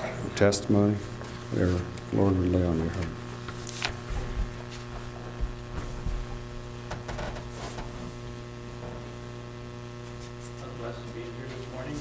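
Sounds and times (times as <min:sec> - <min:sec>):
electrical mains hum: 0:00.0 - 0:12.0
faint rustles and knocks: 0:03.0 - 0:09.2.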